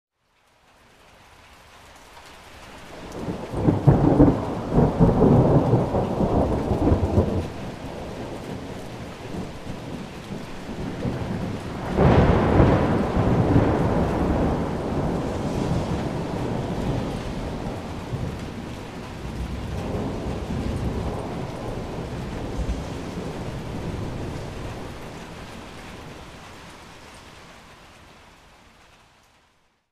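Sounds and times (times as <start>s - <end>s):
steady rain: 0.1s - 29.9s
thunder rolling: 2.9s - 26.7s.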